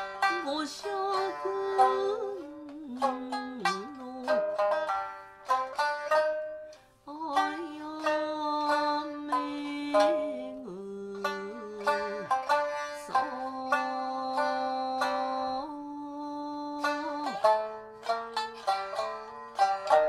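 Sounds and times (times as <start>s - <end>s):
shamisen plucked: 0.0s - 20.0s
woman singing long notes: 0.2s - 4.7s, 7.1s - 17.6s.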